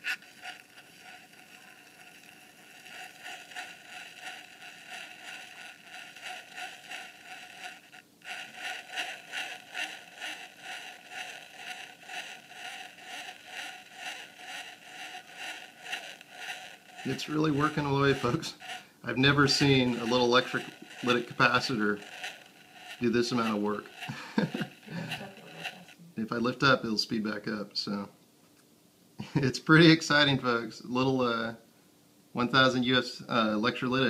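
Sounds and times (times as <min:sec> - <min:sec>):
straw scraping spinning rotor: 0:00.0 - 0:26.8.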